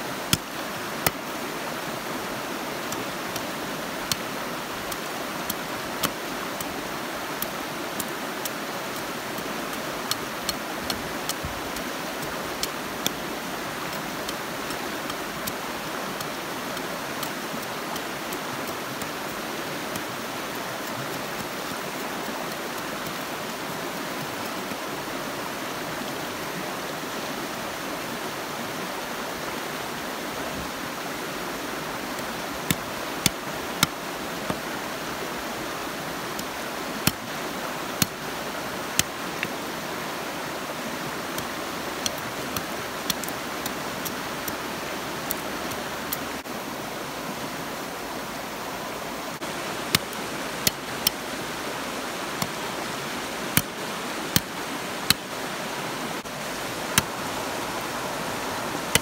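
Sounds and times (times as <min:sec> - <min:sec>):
knife chopping bamboo: 0:00.3 - 0:01.2, 0:02.8 - 0:23.3, 0:32.7 - 0:34.7, 0:37.0 - 0:37.4, 0:38.9 - 0:39.6, 0:49.9 - 0:51.2.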